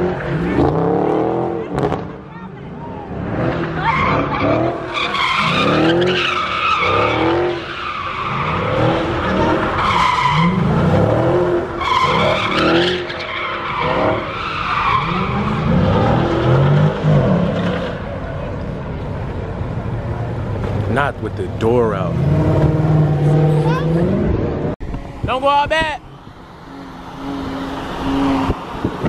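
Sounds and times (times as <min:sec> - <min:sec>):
car engine revving: 0:00.0 - 0:18.7, 0:19.3 - 0:25.1, 0:26.2 - 0:29.0
tyres screeching: 0:03.6 - 0:16.6.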